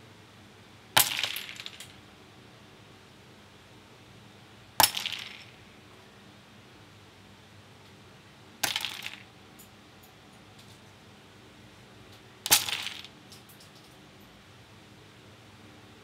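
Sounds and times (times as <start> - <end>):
plastic parts clattering: 12.5 - 13.9.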